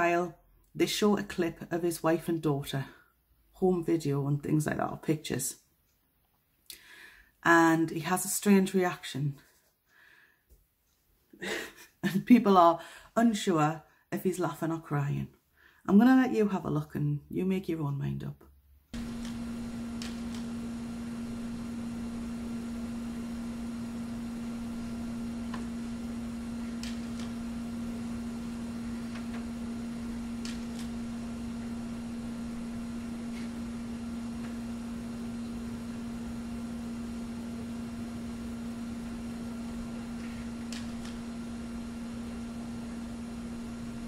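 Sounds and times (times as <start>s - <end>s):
electrical hum: 19.0s - 44.0s.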